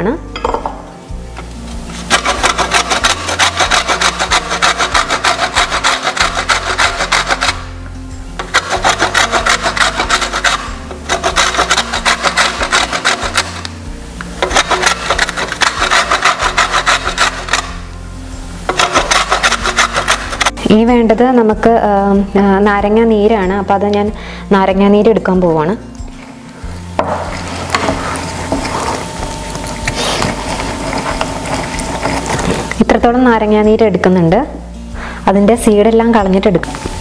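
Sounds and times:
background music with bass: 0.0 - 37.0
grater rasping on rind: 1.9 - 7.8, 8.4 - 17.9, 18.7 - 20.6, 27.4 - 32.8.

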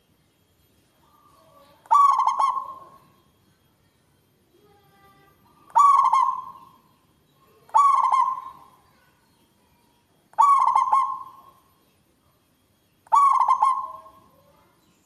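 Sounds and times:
dove cooing song: 1.1 - 3.2, 5.5 - 7.0, 7.6 - 8.8, 10.3 - 11.8, 13.0 - 14.4.

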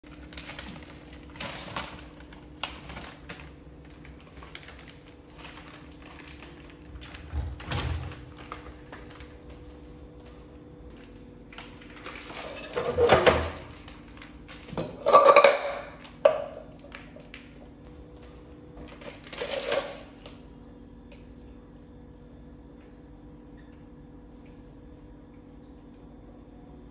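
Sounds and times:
kitchenware clattering: 12.3 - 13.8, 14.7 - 16.7.

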